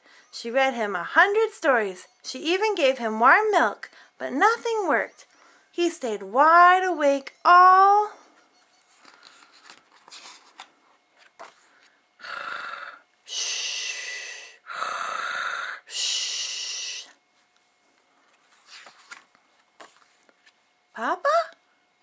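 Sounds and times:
book pages turning: 8.8 - 12.0, 18.2 - 20.6
person imitating snoring: 12.2 - 17.0.

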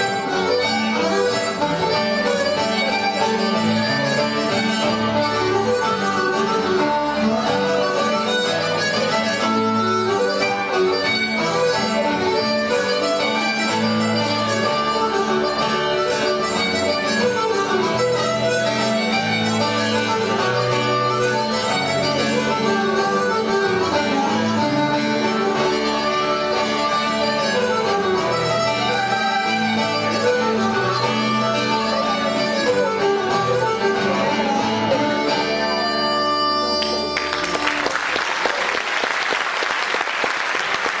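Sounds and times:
acoustic guitar: 0.0 - 38.5
harmonica: 0.0 - 38.6
fiddle: 0.0 - 38.8
audience applause: 36.8 - 41.0.

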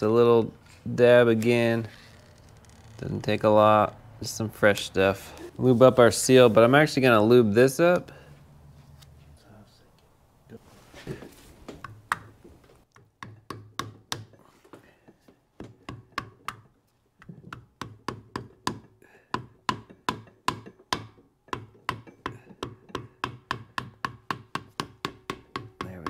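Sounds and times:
small hammer tapping: 12.9 - 14.4, 15.6 - 26.0.

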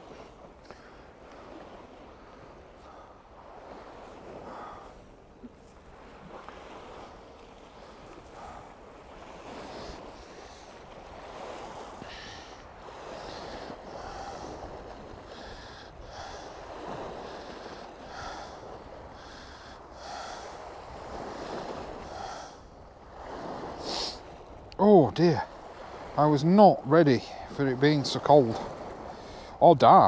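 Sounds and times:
wind on microphone: 1.2 - 24.7.

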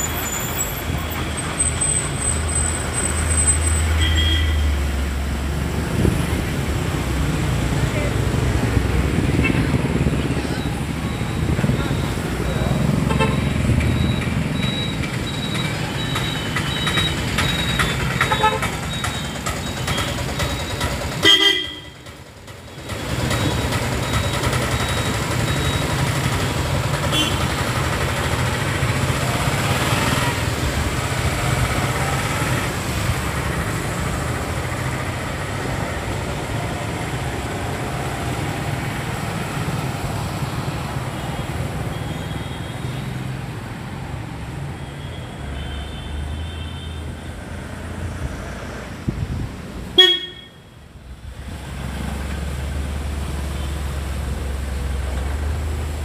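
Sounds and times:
vehicles passing on road: 0.0 - 56.0
vehicle horns tooting: 3.9 - 4.8, 12.9 - 13.5, 18.2 - 18.7, 21.2 - 22.0, 27.0 - 27.6, 50.0 - 50.6.

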